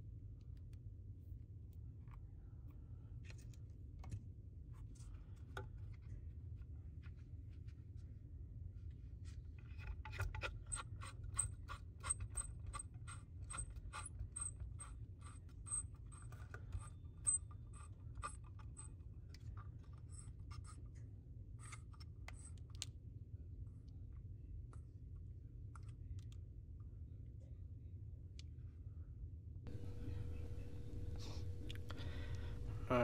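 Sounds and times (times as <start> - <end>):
steady low hum: 12.4 - 33.0.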